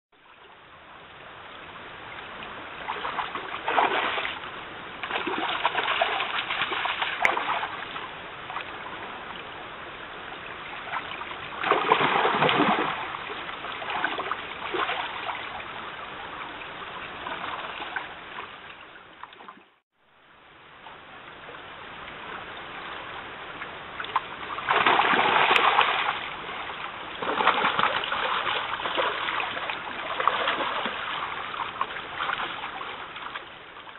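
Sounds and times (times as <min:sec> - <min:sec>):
stream running: 0:00.2 - 0:33.9
bear splashing in water: 0:02.8 - 0:04.4, 0:05.0 - 0:08.6, 0:10.9 - 0:15.6, 0:24.1 - 0:33.4.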